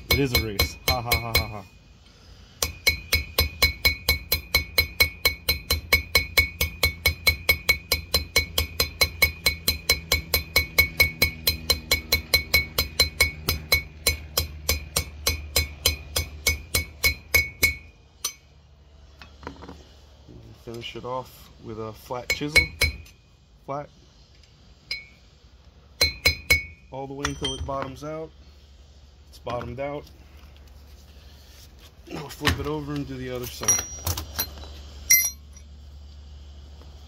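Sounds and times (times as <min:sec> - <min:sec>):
hammer tapping metal with ring: 0:00.0 - 0:01.8, 0:02.6 - 0:18.5, 0:22.3 - 0:23.2, 0:24.8 - 0:25.2, 0:26.0 - 0:27.9.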